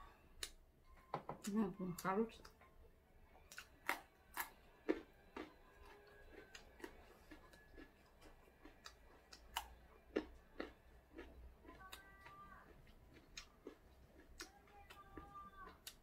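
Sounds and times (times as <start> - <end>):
carrot crunching: 3.5 - 15.0.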